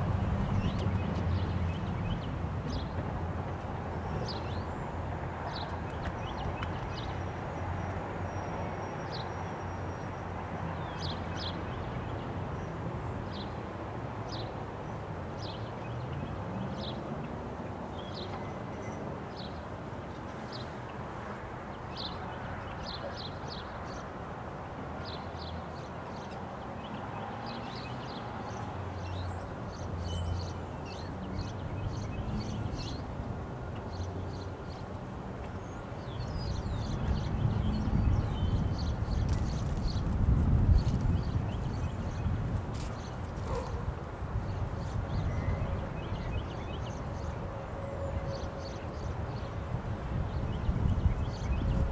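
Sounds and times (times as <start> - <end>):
road vehicles driving: 0.0 - 22.8.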